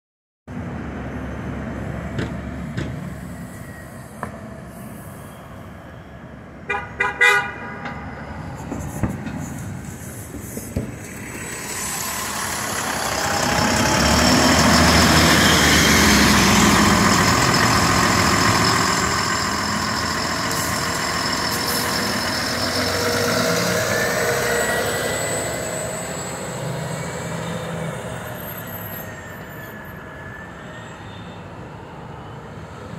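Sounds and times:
bus passing with rising whine: 0:00.5 - 0:32.9
street traffic: 0:00.5 - 0:32.9
vehicle horn toots: 0:06.7 - 0:07.8.

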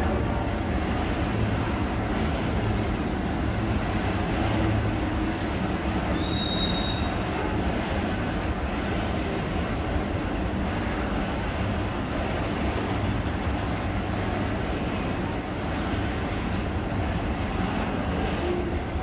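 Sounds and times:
train wheels rumbling on rails: 0:00.0 - 0:19.0
wheel squeal: 0:05.3 - 0:07.1.

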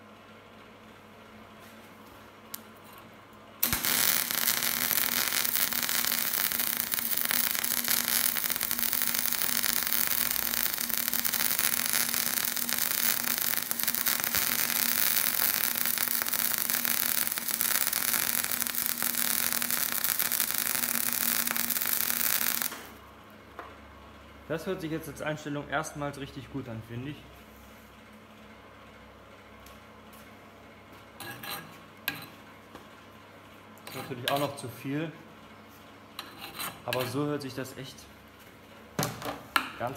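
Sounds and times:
welding arc crackling: 0:03.6 - 0:23.0.

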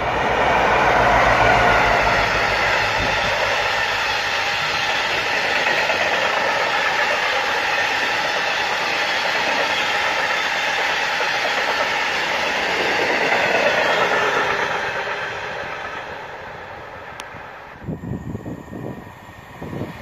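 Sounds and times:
diesel locomotive engine rumble: 0:00.0 - 0:20.0
train wagons rolling over rails: 0:00.0 - 0:20.0.

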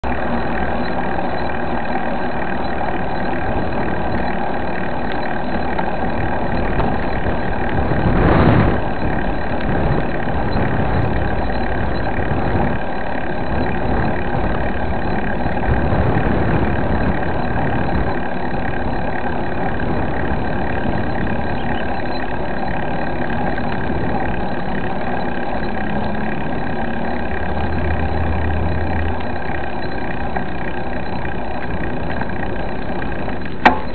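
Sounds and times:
bike tyre road rumble: 0:00.0 - 0:33.9
wind noise on microphone: 0:06.1 - 0:22.1.

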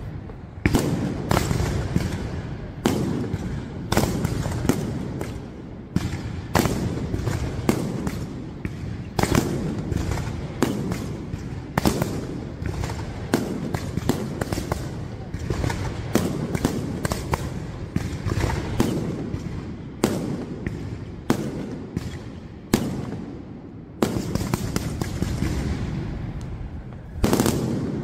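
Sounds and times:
fireworks bursting with sharp bangs: 0:00.0 - 0:28.0.

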